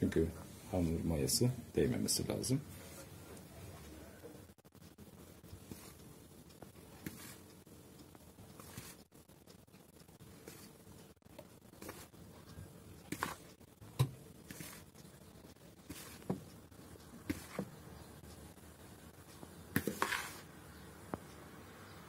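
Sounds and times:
metal spoon scooping flour: 0:06.8 - 0:09.1, 0:10.2 - 0:11.0, 0:11.7 - 0:18.1, 0:19.7 - 0:20.6.

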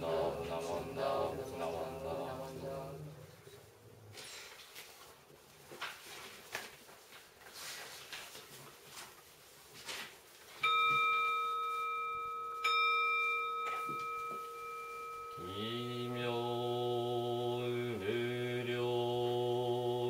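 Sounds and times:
deep voice chanting: 0:00.0 - 0:03.4, 0:15.4 - 0:20.0
bowl bell ringing: 0:10.6 - 0:16.4.

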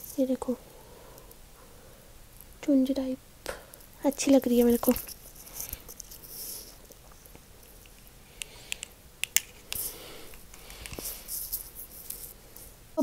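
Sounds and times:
sharp small handling clicks: 0:07.3 - 0:09.9.

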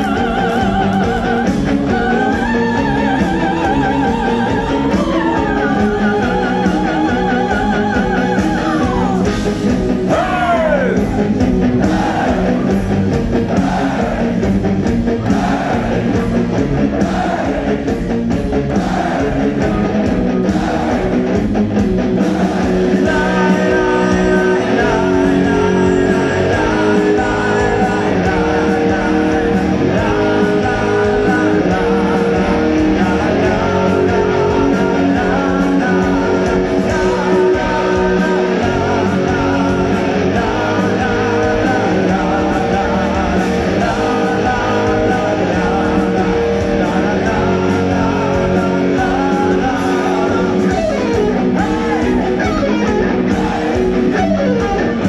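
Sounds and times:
distorted guitars: 0:00.0 - 0:55.0
drums: 0:00.0 - 0:55.0
person singing: 0:10.1 - 0:11.0, 0:22.3 - 0:54.8.

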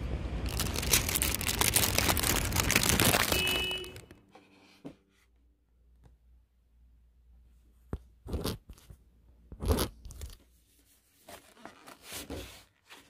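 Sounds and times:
plastic bag rustling: 0:00.4 - 0:04.2.

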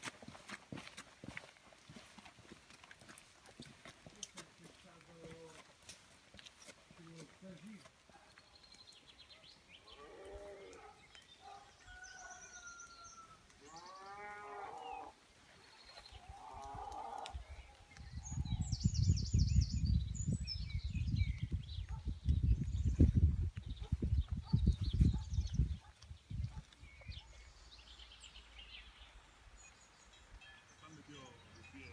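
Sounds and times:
small birds chirping: 0:03.4 - 0:31.9
wind buffeting microphone: 0:16.2 - 0:27.2.

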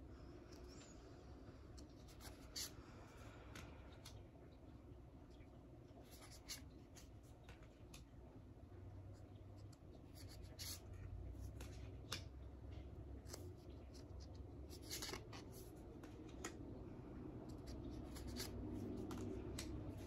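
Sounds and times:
cards sliding against each other: 0:13.2 - 0:16.6, 0:17.4 - 0:20.0.

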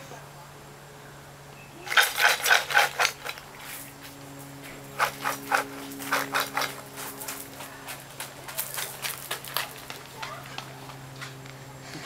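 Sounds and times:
footsteps crunching on gravel: 0:03.6 - 0:11.6.

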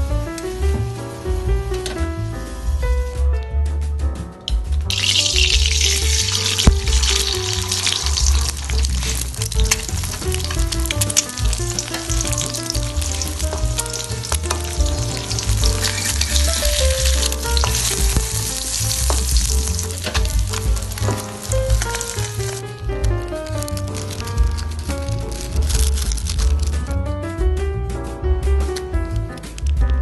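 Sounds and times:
background music with bass beat: 0:00.0 - 0:30.0
egg sizzling in oil: 0:04.9 - 0:22.6
metal spatula scraping wok: 0:05.8 - 0:22.6.

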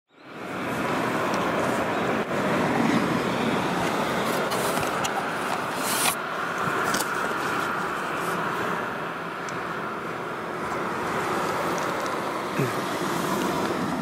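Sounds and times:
road traffic noise: 0:00.1 - 0:14.0.

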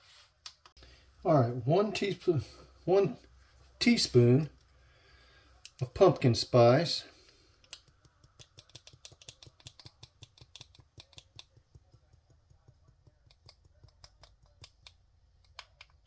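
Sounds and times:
spice jar shaken and tapped: 0:07.6 - 0:16.0.

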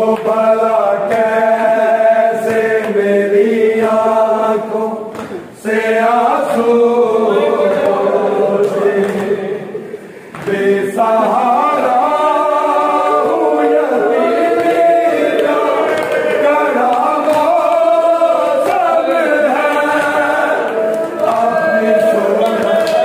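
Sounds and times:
group of voices chanting: 0:00.0 - 0:23.0.

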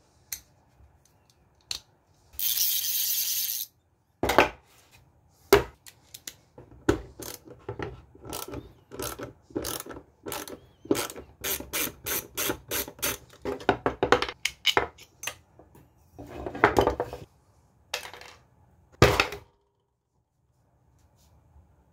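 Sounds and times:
socket wrench ratchet clicking: 0:02.4 - 0:03.7.

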